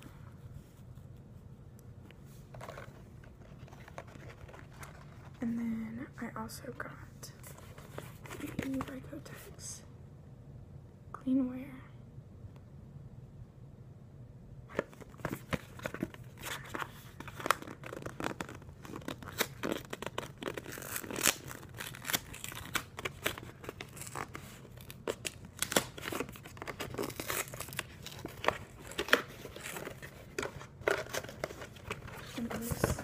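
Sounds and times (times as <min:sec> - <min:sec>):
cardboard box tearing: 0:17.3 - 0:33.0.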